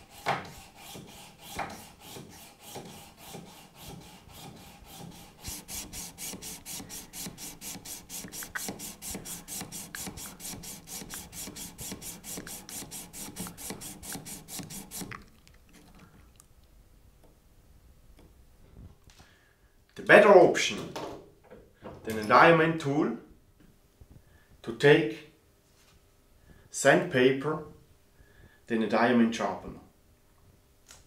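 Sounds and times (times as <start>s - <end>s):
saw blade rasping on sharpening plate: 0.0s - 15.1s.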